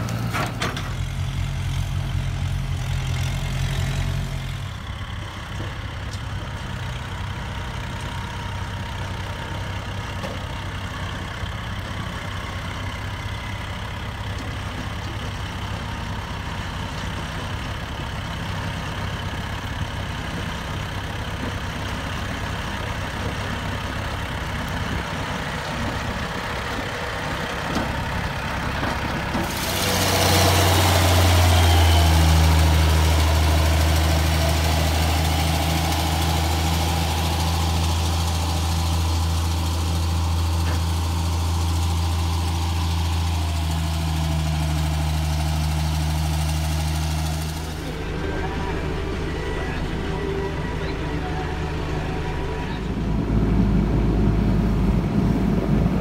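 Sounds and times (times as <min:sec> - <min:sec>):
heavy diesel machinery droning: 0:00.0 - 0:56.0
tractor diesel engine running: 0:00.0 - 0:56.0.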